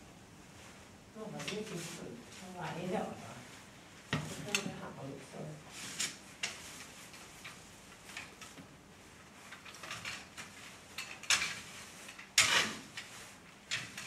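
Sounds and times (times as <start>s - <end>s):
stable fork scraping floor: 9.5s - 14.0s.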